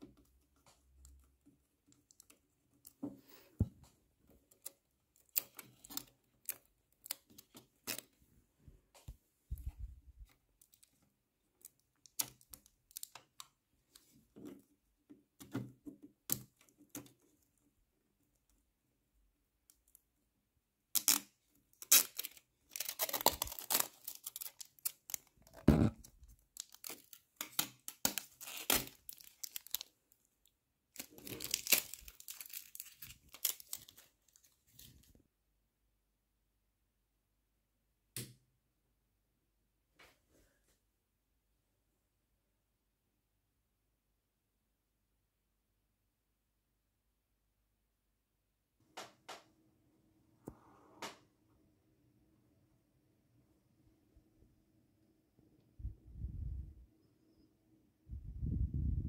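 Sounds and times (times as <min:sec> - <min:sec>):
plastic crinkling and tearing: 0:11.6 - 0:13.1, 0:20.9 - 0:30.0, 0:30.9 - 0:35.1.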